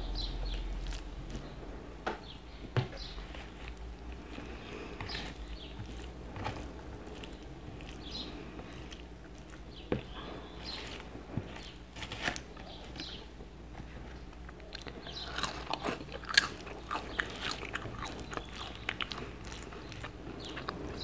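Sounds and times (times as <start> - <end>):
low steady hum: 0.0 - 21.0
chewing: 0.2 - 1.5, 3.0 - 21.0.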